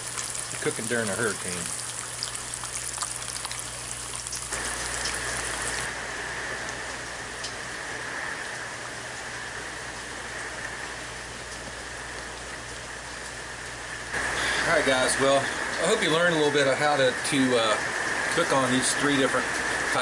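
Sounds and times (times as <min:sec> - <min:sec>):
eggs sizzling in a skillet: 0:00.0 - 0:06.0
storm rain in trees: 0:00.0 - 0:20.0.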